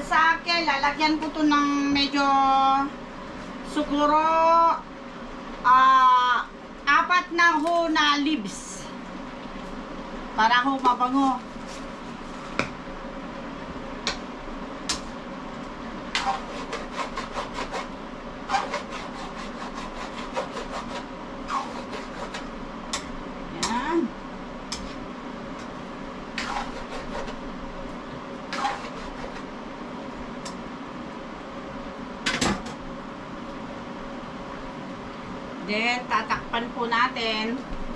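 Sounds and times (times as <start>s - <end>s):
steady hum: 0.0s - 37.9s
spatula scraping a frying pan: 16.2s - 17.9s, 18.5s - 22.5s, 26.4s - 27.4s, 28.5s - 29.5s.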